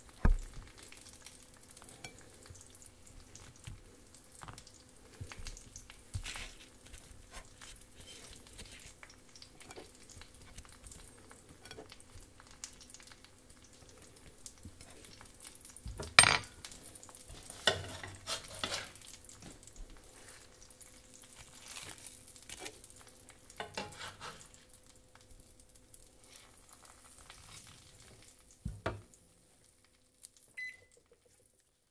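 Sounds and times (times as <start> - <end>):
eggs sizzling in frying pan: 0.0 - 31.9
utensil clinking and scraping pan: 17.4 - 19.0, 23.6 - 24.5.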